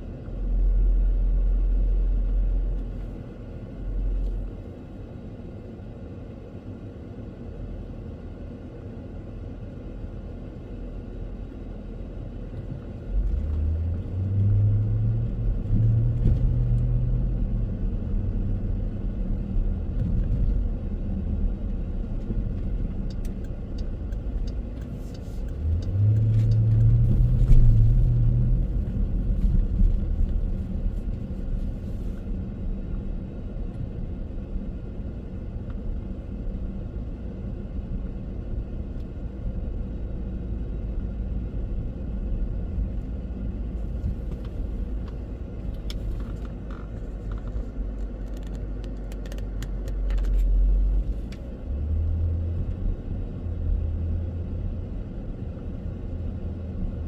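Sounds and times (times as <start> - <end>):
car engine and road rumble: 0.0 - 57.0
engine hum rising in pitch: 12.9 - 57.0.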